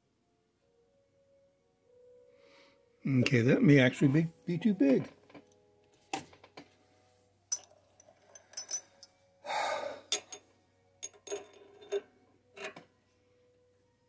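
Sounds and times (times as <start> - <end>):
metallic clicks and clinks: 7.5 - 9.2, 10.1 - 12.8.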